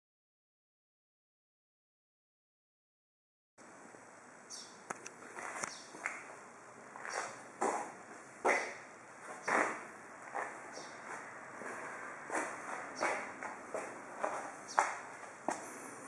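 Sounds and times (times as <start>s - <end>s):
footsteps scuffing on concrete: 5.2s - 15.9s.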